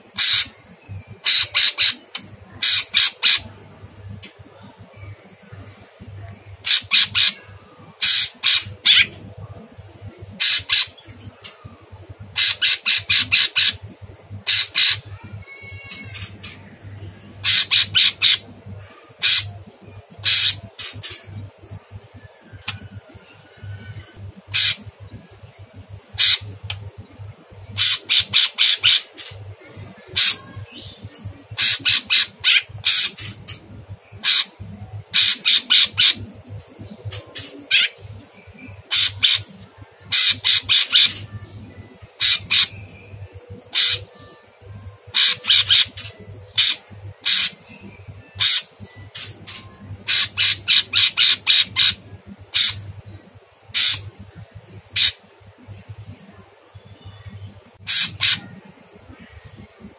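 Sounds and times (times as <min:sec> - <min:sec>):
bird singing harsh song: 0:23.6 - 0:55.3.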